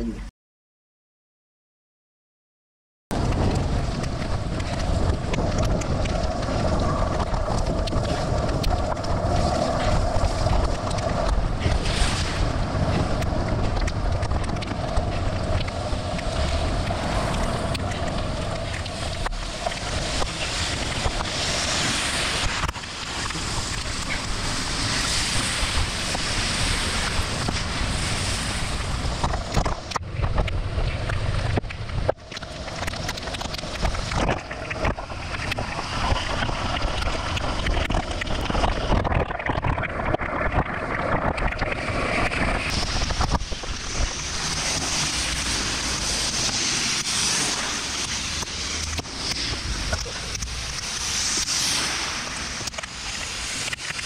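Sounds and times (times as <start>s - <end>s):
wind buffeting microphone: 3.1s - 54.0s
hiss of water off wet road: 8.2s - 30.0s, 42.0s - 54.0s.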